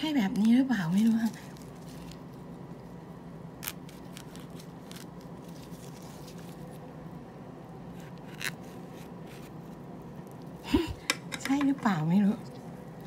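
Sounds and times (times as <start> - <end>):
low steady hum: 0.0 - 13.0
knife scratching fruit skin: 7.9 - 9.6.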